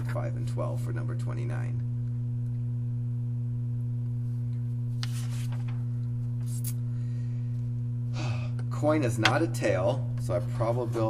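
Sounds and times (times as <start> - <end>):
low electrical hum: 0.0 - 11.0
paper rustling: 5.0 - 5.8.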